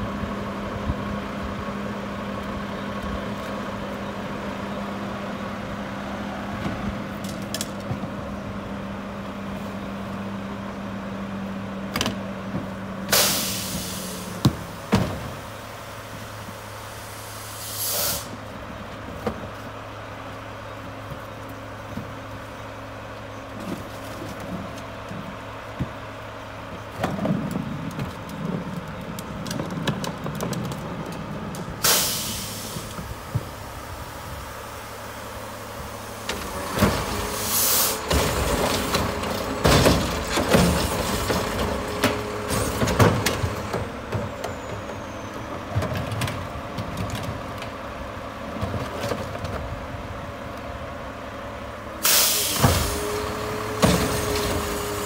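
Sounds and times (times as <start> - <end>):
garbage truck idling: 0.0 - 55.0
truck whine: 0.0 - 55.0
air brake hisses: 13.1 - 14.4, 16.9 - 18.4, 31.8 - 33.0, 37.4 - 38.0, 52.0 - 53.0
metal clanks and rattles: 38.0 - 44.6.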